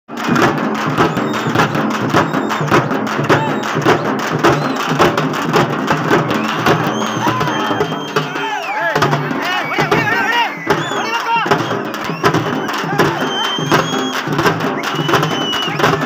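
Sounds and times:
drums beaten in steady rhythm: 0:00.1 - 0:16.0.

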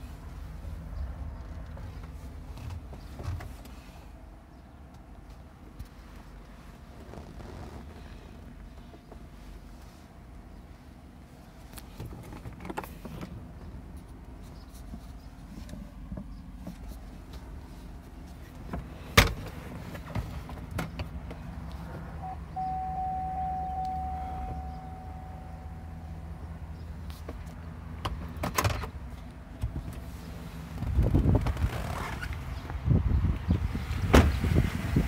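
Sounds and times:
vehicle rumble inside cab: 0:00.0 - 0:35.0
steady whine: 0:22.2 - 0:26.7.

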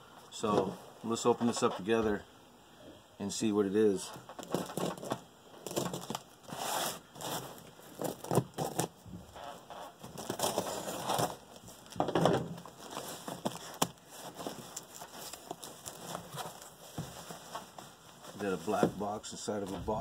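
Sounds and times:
cardboard crinkling: 0:04.3 - 0:20.0.

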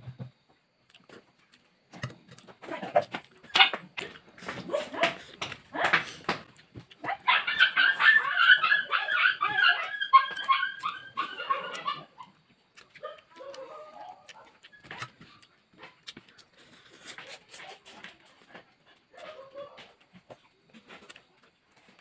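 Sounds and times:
dog whining: 0:07.1 - 0:12.4.

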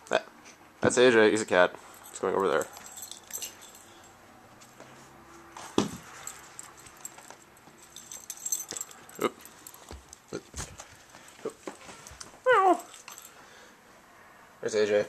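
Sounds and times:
dog moving about: 0:01.8 - 0:13.4.

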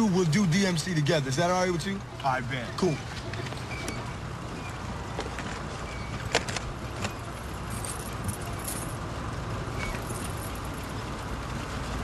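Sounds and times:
light metallic jangling: 0:07.4 - 0:09.1, 0:09.8 - 0:10.9.

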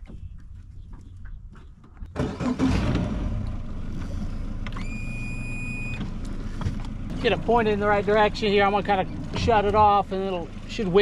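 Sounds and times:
outboard motor running: 0:00.6 - 0:11.0
high beep: 0:04.8 - 0:06.0.

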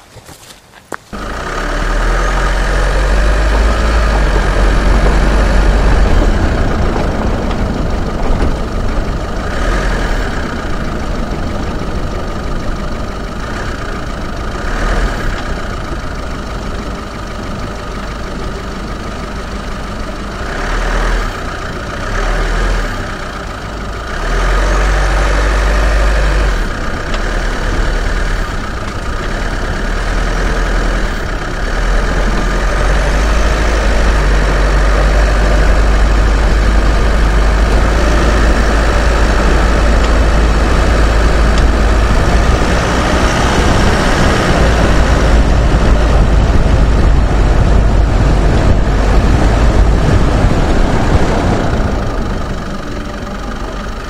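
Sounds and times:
tyres crunching on dirt: 0:00.0 - 0:17.5
diesel engine running: 0:00.0 - 0:54.0
deep rumble: 0:01.1 - 0:54.0.

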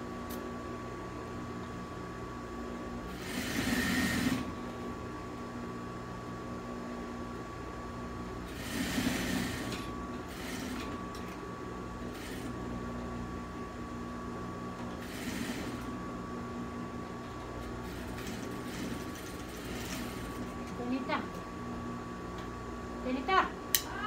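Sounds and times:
sewing machine rattling: 0:17.8 - 0:20.8.

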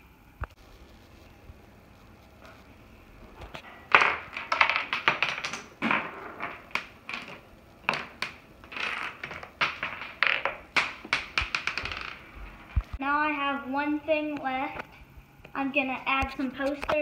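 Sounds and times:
dominoes toppling clattering: 0:03.9 - 0:12.3.

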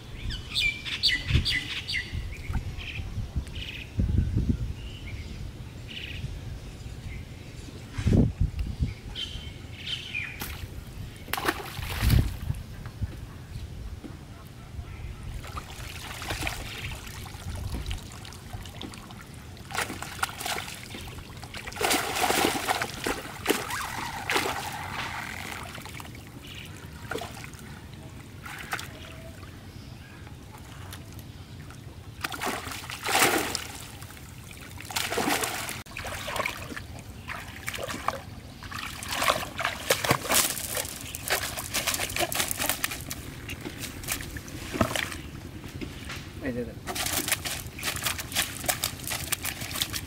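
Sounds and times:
water splashing and sloshing: 0:10.4 - 0:12.6, 0:15.3 - 0:46.2, 0:46.8 - 0:50.0
water trickling from net: 0:46.9 - 0:50.0.

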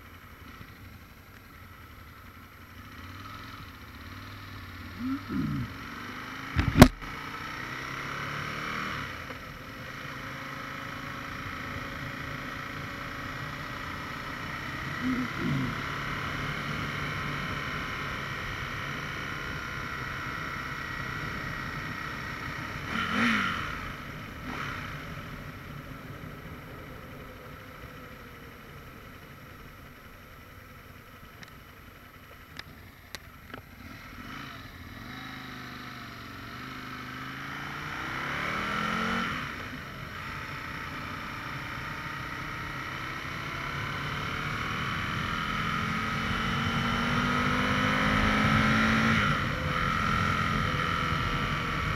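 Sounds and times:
motorcycle engine: 0:00.0 - 0:51.9.

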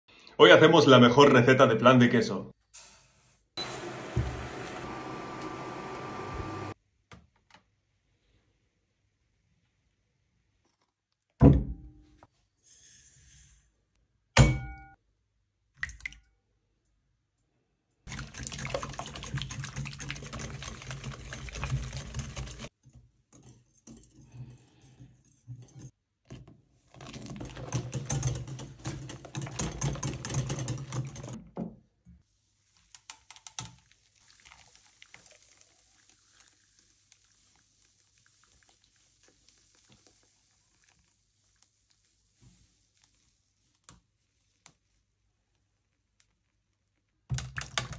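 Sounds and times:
batter mixing in glass bowl: 0:18.1 - 0:22.7, 0:26.9 - 0:31.4
batter pouring through strainer: 0:33.8 - 0:44.5.

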